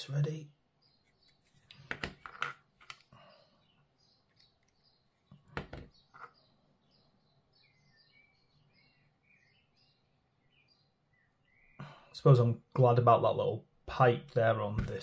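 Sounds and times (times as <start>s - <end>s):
faint high bird chirps: 3.2s - 12.2s.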